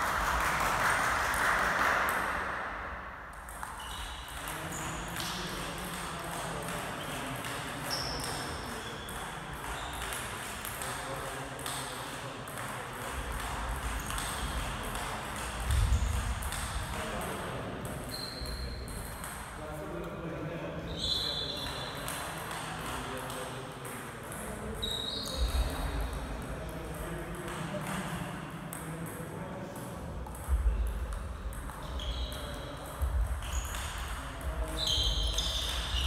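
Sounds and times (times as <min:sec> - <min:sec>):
shoes squeaking on wooden floor: 0:31.9 - 0:32.3, 0:34.8 - 0:36.0.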